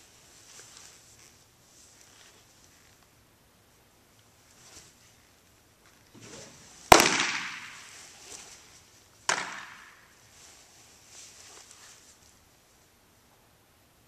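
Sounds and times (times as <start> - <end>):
baseball smacking into mitt: 6.9 - 7.9, 9.3 - 10.0.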